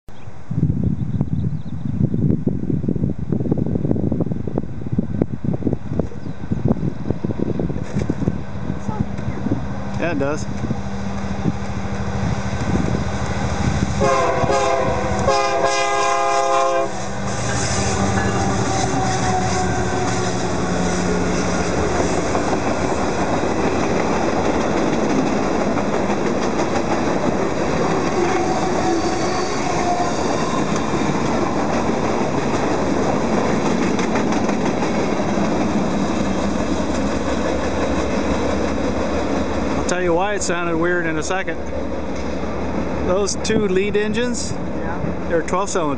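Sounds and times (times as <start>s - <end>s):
diesel engines droning: 8.4s - 26.1s
train air horn blasts: 13.9s - 22.3s, 28.0s - 30.7s
train wheel clatter: 17.3s - 40.5s.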